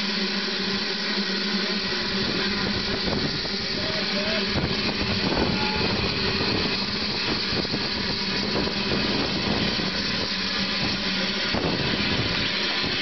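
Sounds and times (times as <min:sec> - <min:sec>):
low hum: 0:00.0 - 0:13.0
steam locomotive hissing: 0:00.0 - 0:13.0.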